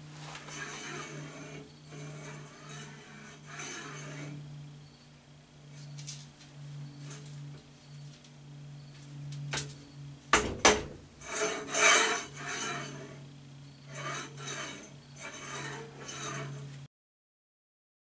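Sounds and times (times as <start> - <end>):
steady low hum: 0.0 - 16.9
bearings rolling on steel rail: 0.2 - 8.4, 9.2 - 16.9
sharp metal knocks: 10.3 - 11.3.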